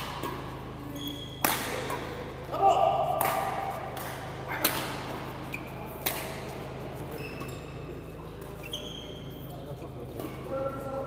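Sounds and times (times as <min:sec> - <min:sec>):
shoes squeaking on court floor: 0:00.0 - 0:02.4, 0:04.3 - 0:10.6
rackets hitting shuttlecock: 0:00.0 - 0:08.5
steady low hum: 0:00.0 - 0:11.0.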